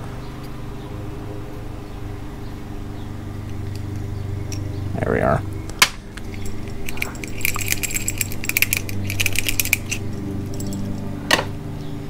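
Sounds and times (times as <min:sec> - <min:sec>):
low hum: 0:00.0 - 0:12.0
screwdrivers clicking on metal: 0:06.1 - 0:11.4.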